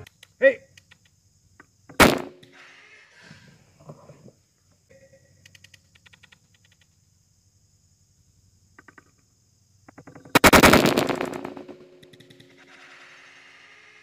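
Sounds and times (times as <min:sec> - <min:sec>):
faint clicks: 0:00.0 - 0:01.7, 0:05.3 - 0:07.0
crossbow firing: 0:01.9 - 0:02.6, 0:10.3 - 0:12.8.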